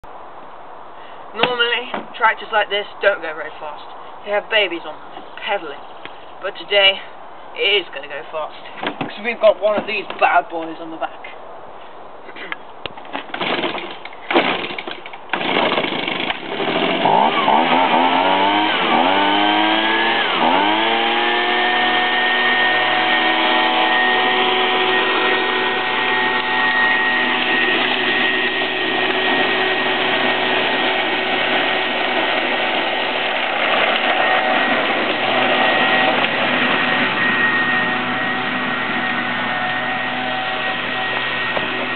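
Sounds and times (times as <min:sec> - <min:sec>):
petrol leaf blower running: 0:13.4 - 0:41.9.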